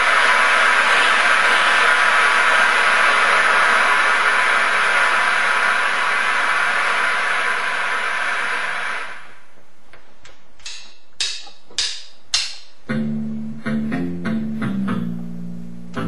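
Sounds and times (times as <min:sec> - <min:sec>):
electric bass guitar: 0:12.9 - 0:16.0.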